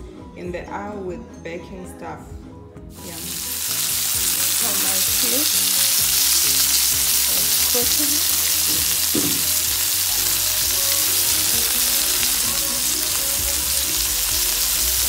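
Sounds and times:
fish sizzling in oil: 0:02.9 - 0:15.0.

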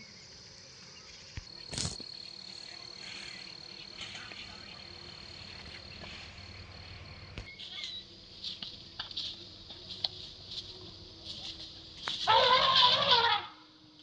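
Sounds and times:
faint chirps: 0:00.0 - 0:08.2
insects trilling: 0:00.0 - 0:14.0.

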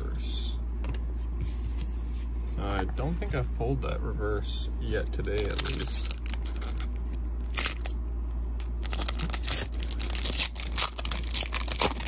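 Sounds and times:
foil wrapper crackling: 0:05.4 - 0:08.0, 0:08.6 - 0:12.0.

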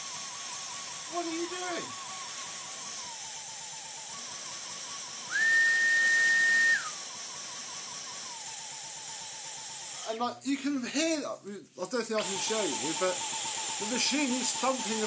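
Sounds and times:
vacuum motor pulsing whine: 0:00.0 - 0:07.6.

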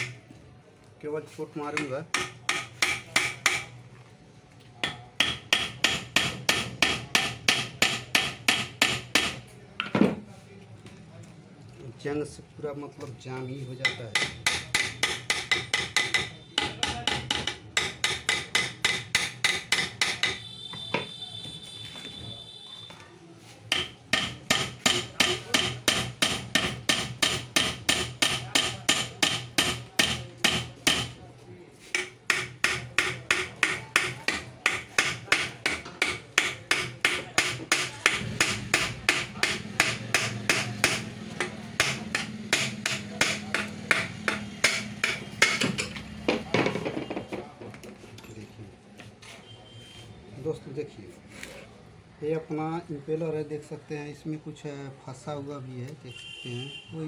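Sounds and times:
hammer striking metal: 0:01.8 - 0:03.7, 0:04.8 - 0:09.4, 0:13.8 - 0:21.1, 0:23.7 - 0:31.2, 0:31.9 - 0:46.8.

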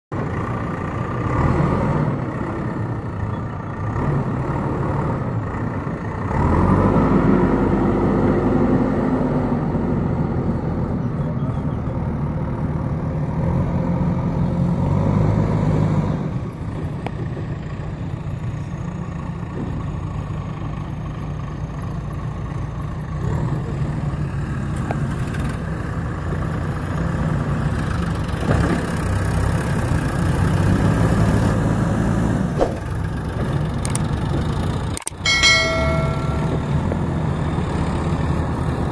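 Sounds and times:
diesel engines running: 0:00.1 - 0:38.9.

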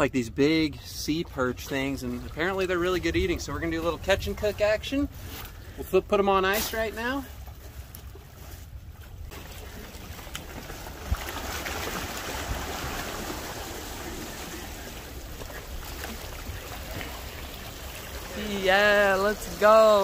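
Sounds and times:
sea water splashing against boulders: 0:09.3 - 0:20.0.

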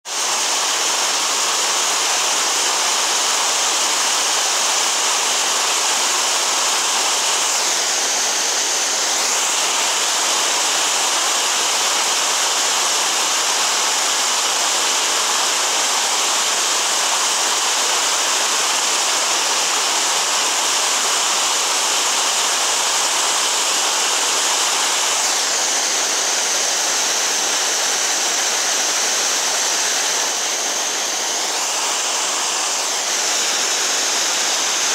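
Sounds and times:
creek rushing over rocks: 0:00.0 - 0:34.9.

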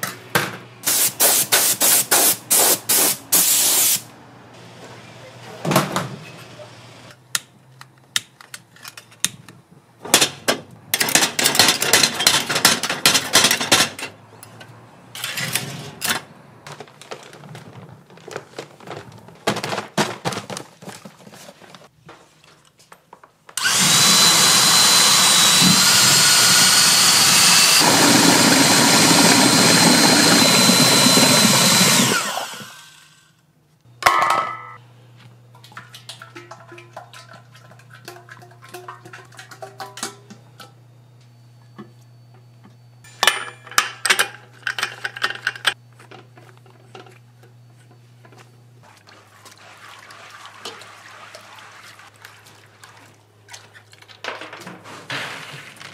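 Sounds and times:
small electric motor whining: 0:23.6 - 0:33.2.

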